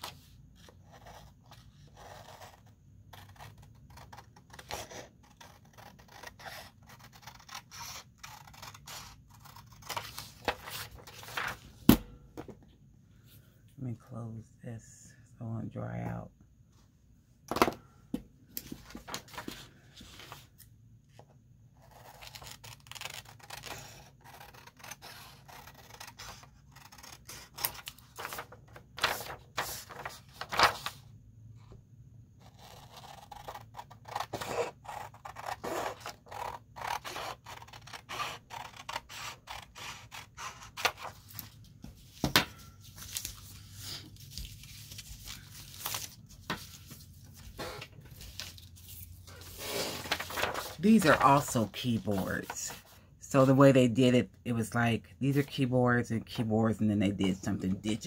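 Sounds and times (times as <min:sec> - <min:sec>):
paper rustling: 0:06.9 - 0:11.6, 0:18.6 - 0:20.6, 0:22.0 - 0:31.0, 0:40.4 - 0:53.0
scissors snipping paper: 0:21.8 - 0:30.6.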